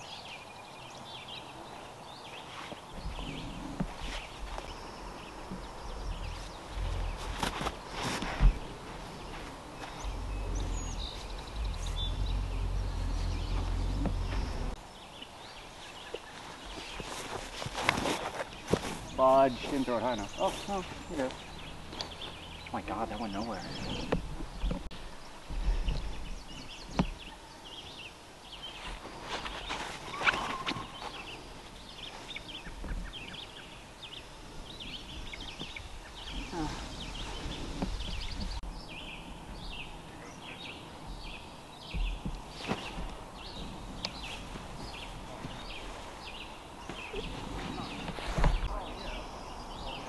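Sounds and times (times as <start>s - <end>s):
small birds chirping: 0.0s - 50.0s
low rumble on microphone: 2.9s - 14.8s, 34.1s - 50.0s.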